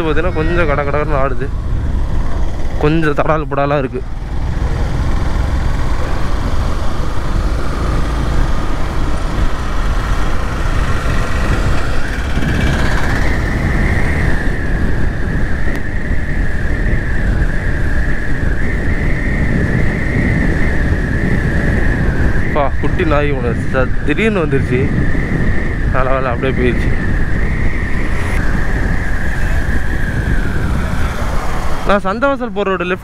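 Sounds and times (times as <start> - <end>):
steady high whine: 0.0 - 33.0
wind rushing over microphone: 0.0 - 33.0
motorcycle engine under way: 3.9 - 16.4.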